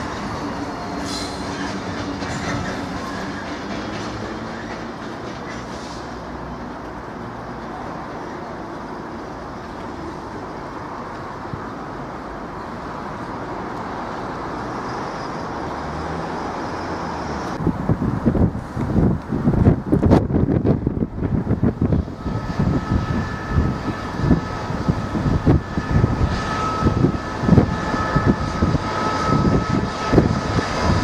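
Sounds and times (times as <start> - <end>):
diesel locomotive engine running: 0.0 - 7.5, 16.4 - 31.0
train rolling over tracks: 0.0 - 31.0
wind buffeting microphone: 17.5 - 31.0.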